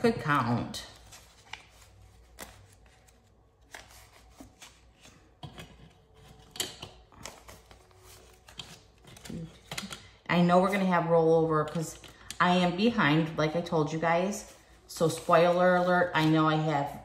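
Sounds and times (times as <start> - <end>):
banknotes rustling and flicking: 0.4 - 6.4, 7.0 - 9.9.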